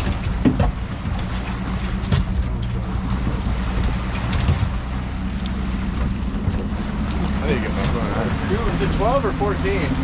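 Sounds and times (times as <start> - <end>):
outboard motor running: 0.0 - 10.0
water washing past hull: 0.0 - 10.0.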